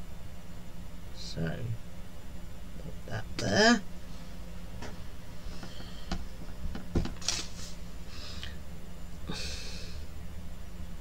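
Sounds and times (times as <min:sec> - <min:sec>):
short hissy breaths: 0:07.4 - 0:08.6.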